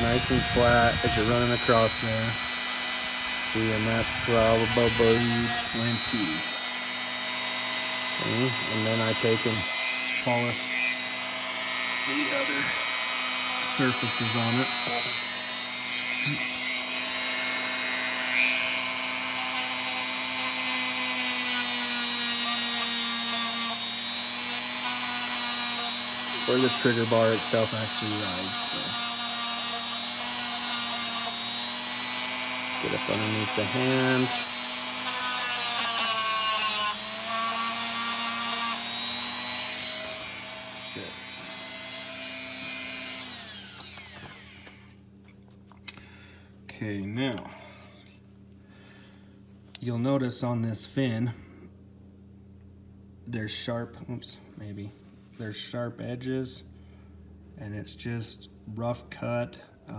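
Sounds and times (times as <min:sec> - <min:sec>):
rotary tool whining: 0:00.0 - 0:45.0.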